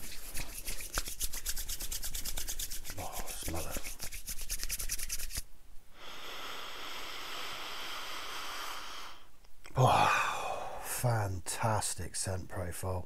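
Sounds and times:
palms rubbing together: 0.0 - 5.5.

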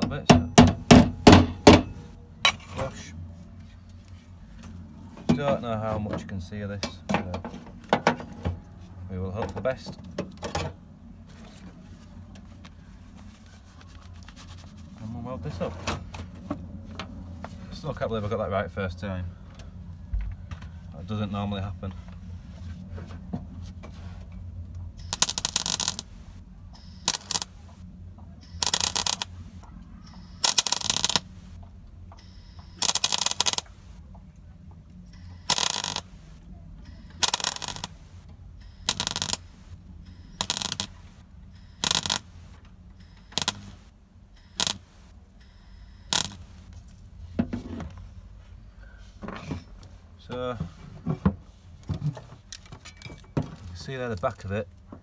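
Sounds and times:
steady low hum: 0.0 - 55.0
welder arc crackling: 25.0 - 27.8, 28.5 - 31.6, 32.3 - 34.0, 35.2 - 45.2, 46.0 - 46.8.

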